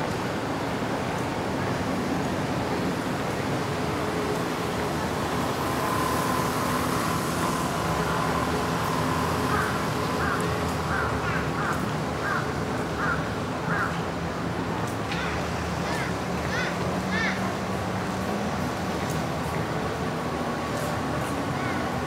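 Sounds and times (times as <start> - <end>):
city traffic noise: 0.0 - 22.0
crow cawing: 9.5 - 14.0, 15.2 - 17.4.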